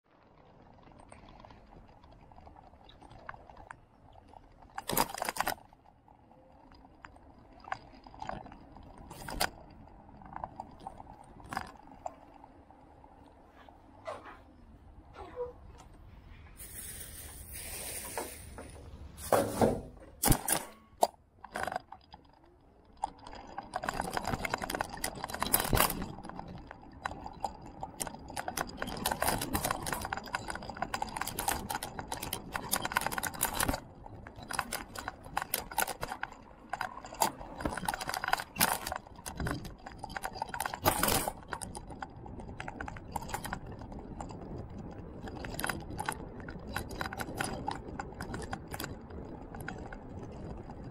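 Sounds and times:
vehicle clattering and rattling: 0:13.4 - 0:50.9.

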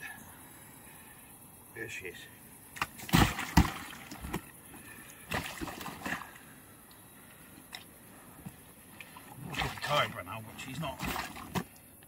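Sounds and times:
water splashing and sloshing: 0:02.7 - 0:12.0
fish slapping: 0:02.8 - 0:04.4.

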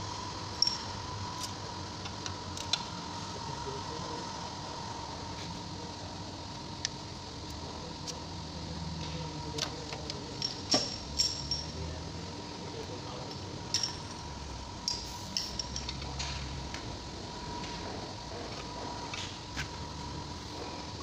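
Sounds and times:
faint steady hum: 0:00.0 - 0:21.0
metallic clinks and knocks: 0:00.6 - 0:01.0, 0:10.4 - 0:11.8, 0:13.3 - 0:16.3
ratchet working: 0:10.3 - 0:11.8.

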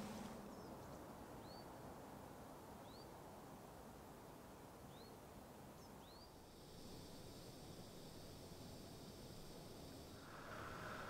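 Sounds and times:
background hiss: 0:00.0 - 0:11.0
bird chirping: 0:05.8 - 0:06.4.

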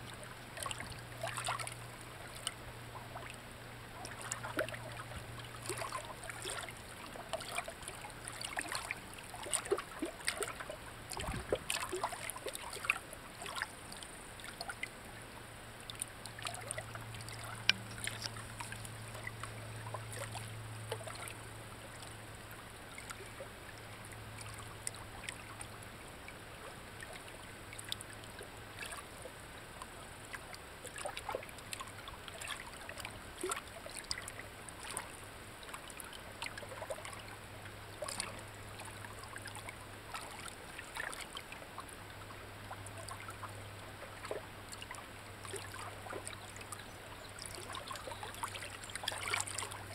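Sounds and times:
water trickling: 0:00.0 - 0:49.9
low hum: 0:15.0 - 0:26.7.

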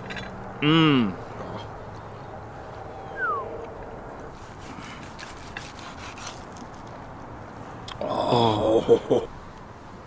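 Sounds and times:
meat pulled apart and chewed: 0:04.9 - 0:07.1.

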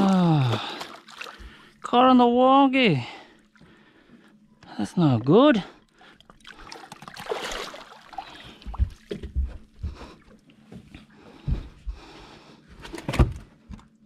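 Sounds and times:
water splashing: 0:00.0 - 0:01.8, 0:05.9 - 0:09.2.

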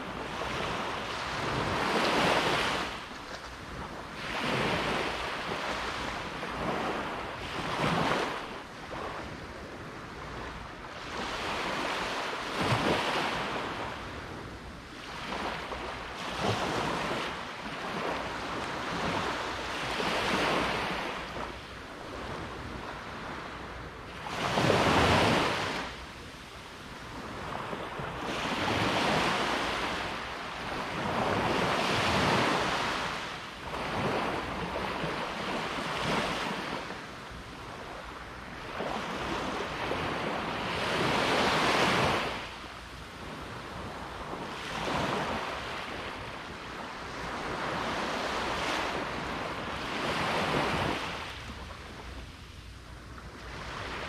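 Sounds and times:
ocean waves breaking: 0:00.0 - 0:14.2, 0:15.0 - 0:42.6.

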